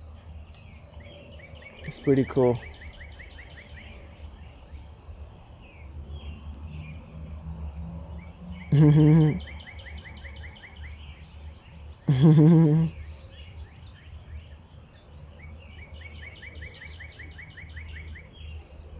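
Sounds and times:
man's short vocal sound: 8.7 - 9.4.

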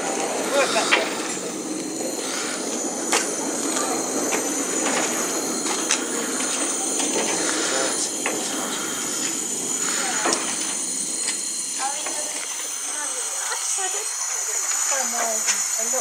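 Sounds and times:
rumble: 0.0 - 13.5
steam hissing: 0.0 - 16.0.

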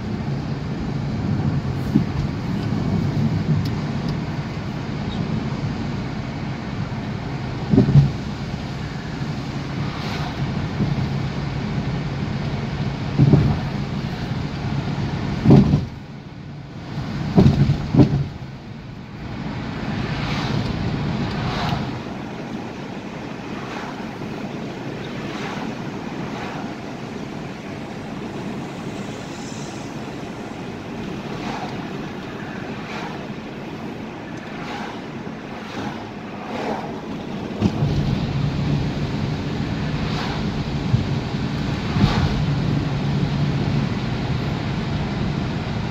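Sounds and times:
engine low hum: 0.0 - 45.9
tyre and wind road noise: 0.0 - 45.9
low thumps: 7.6 - 8.3, 13.1 - 13.8.

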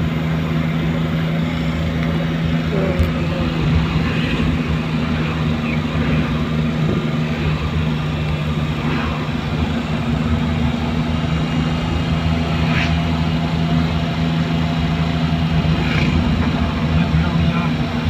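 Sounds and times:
car engine hum: 0.0 - 18.0
road noise inside car: 0.0 - 18.0.

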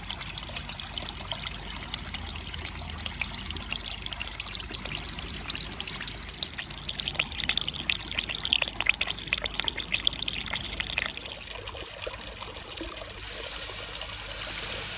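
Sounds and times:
fountain water splashing on pebbles: 0.0 - 14.9.

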